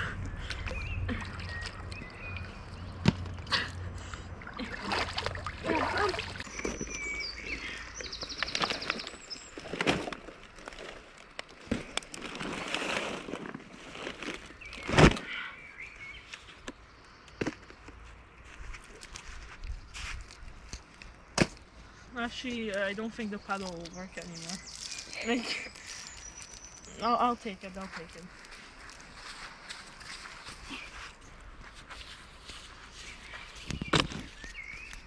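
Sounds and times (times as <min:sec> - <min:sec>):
water splashing and sloshing: 0:00.0 - 0:15.3
plastic bottles crinkling: 0:01.5 - 0:15.4, 0:22.5 - 0:30.8.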